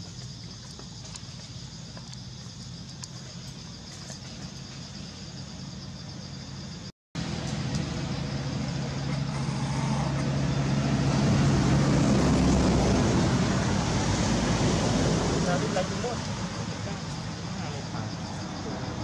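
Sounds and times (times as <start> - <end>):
traffic noise: 0.0 - 19.0
vehicle engine hum: 6.8 - 19.0.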